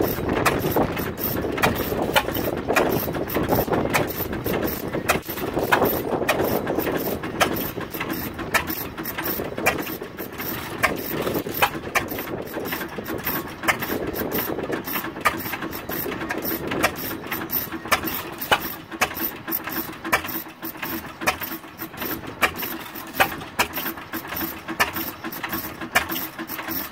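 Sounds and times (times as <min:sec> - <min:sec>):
engine clicks and knocks: 0:00.0 - 0:26.9
low engine chuffing: 0:00.0 - 0:26.9.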